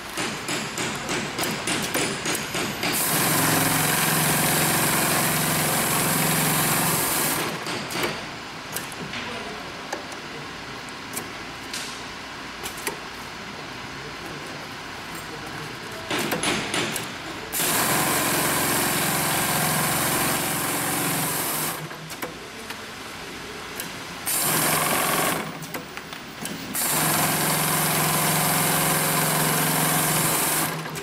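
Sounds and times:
sewing machine humming: 2.9s - 7.7s, 17.5s - 22.0s, 24.3s - 25.8s, 26.7s - 31.0s.

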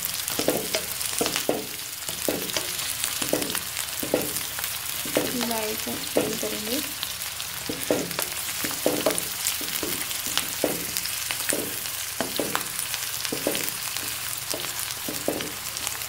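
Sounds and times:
vegetables sizzling in oil: 0.0s - 16.0s
spatula scraping a wok: 7.5s - 16.0s.

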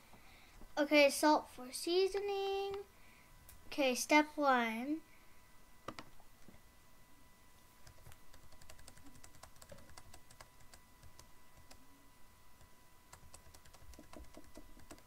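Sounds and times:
keyboard keys clicking: 7.8s - 11.8s, 13.1s - 15.0s.

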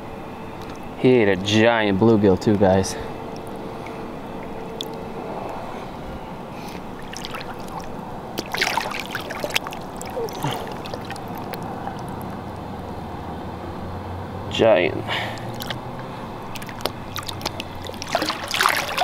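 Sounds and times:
water sloshing and splashing: 3.3s - 5.6s, 6.8s - 12.5s, 15.3s - 19.0s.

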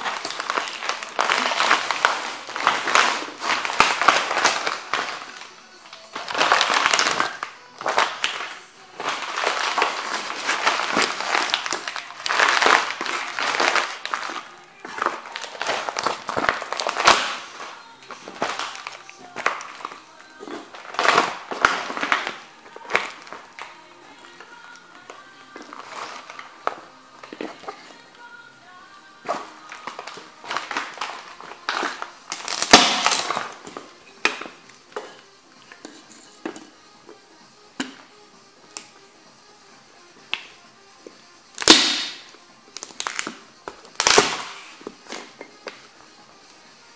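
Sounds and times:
wooden frame cracking: 0.0s - 20.0s, 29.4s - 33.7s, 42.8s - 44.6s
canvas crumpling and crackling: 0.0s - 24.6s, 29.2s - 34.4s, 43.9s - 44.8s
wood slats cracking and splintering: 32.3s - 33.4s.

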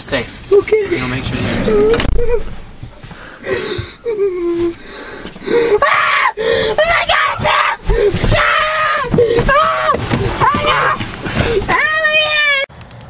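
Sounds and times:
person wailing and screaming: 1.7s - 2.5s, 5.5s - 11.0s.

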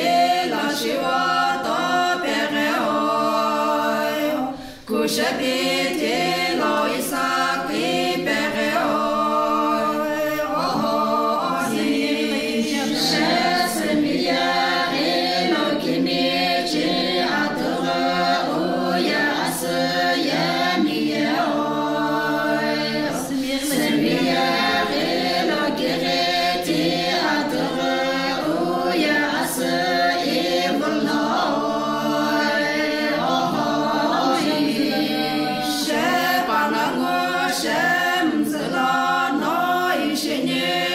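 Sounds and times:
women singing a cappella: 0.0s - 40.9s.

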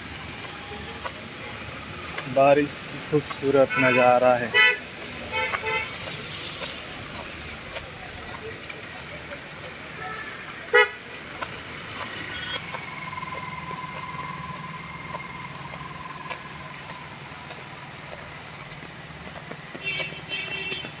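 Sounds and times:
heavy rain on pavement: 0.0s - 21.0s
vehicle engine idling: 10.7s - 20.3s.

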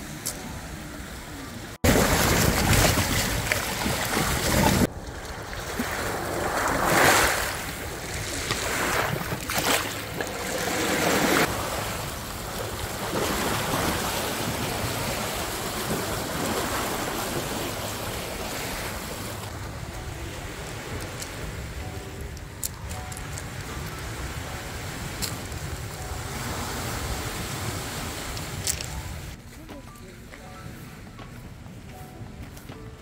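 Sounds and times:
waves washing onto beach: 0.0s - 29.4s
wind noise on microphone: 1.8s - 11.6s.

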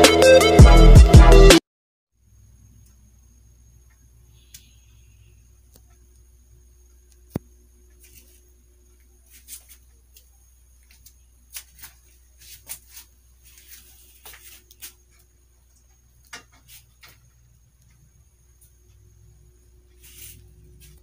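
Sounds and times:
steady low hum: 2.2s - 21.0s
faint clicks and light taps: 14.2s - 19.0s.

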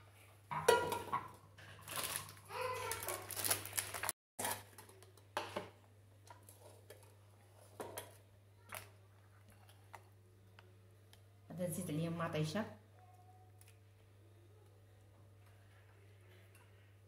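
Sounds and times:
plastic bag crinkling: 1.8s - 4.5s.

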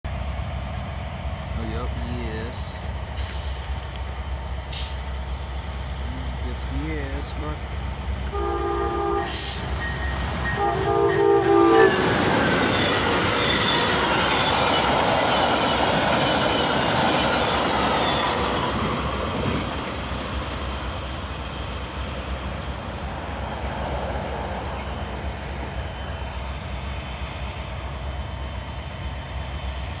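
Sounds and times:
train rumble: 0.0s - 30.0s
train wheels on rails: 0.1s - 30.0s
train horn blasts: 8.3s - 14.0s.

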